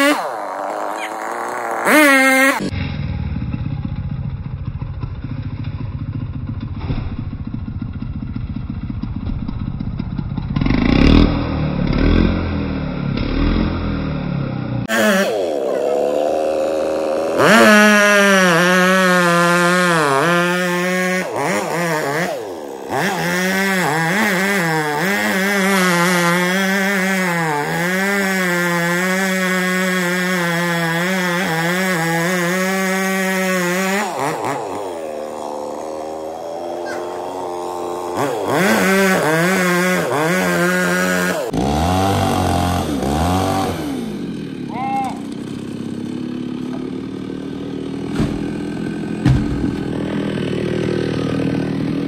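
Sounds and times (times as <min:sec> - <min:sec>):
chainsaw cutting wood: 0:00.0 - 0:02.8, 0:14.8 - 0:52.0.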